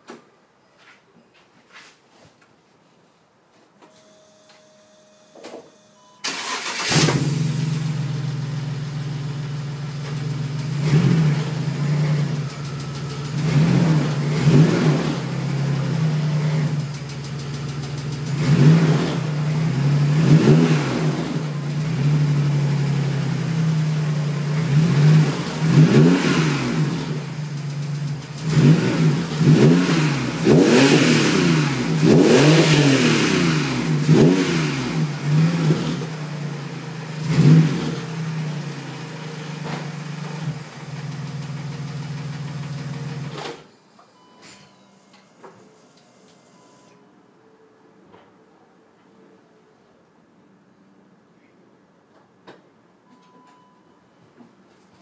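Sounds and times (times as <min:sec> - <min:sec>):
car engine idling and revving: 0:06.3 - 0:43.6.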